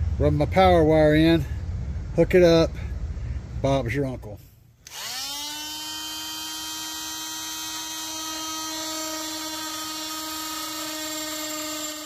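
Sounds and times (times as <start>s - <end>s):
multi-tool cutting plastic: 4.8s - 12.0s.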